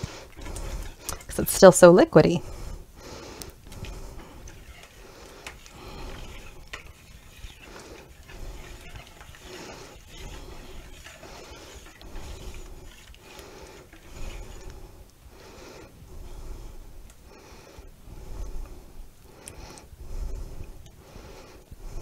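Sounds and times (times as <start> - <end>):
wire whisk scraping in a bowl: 0.0 - 2.8, 3.7 - 15.0.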